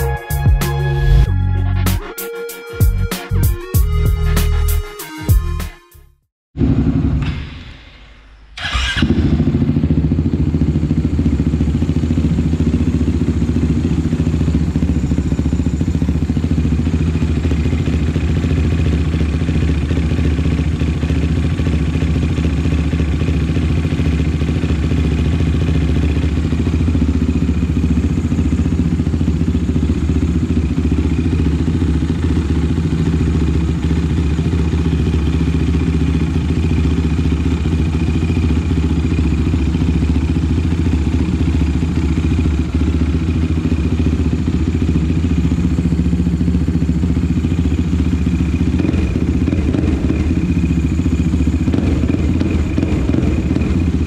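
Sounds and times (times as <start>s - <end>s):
engine idling: 8.6s - 54.0s.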